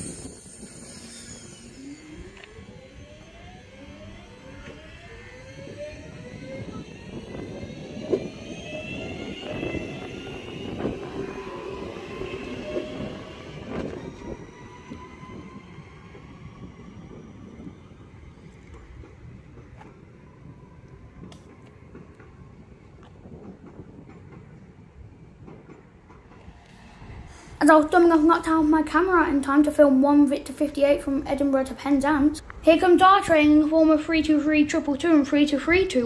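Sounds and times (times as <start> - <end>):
electric train motors whining: 0.0 - 36.0
train coaches rumbling: 0.0 - 36.0.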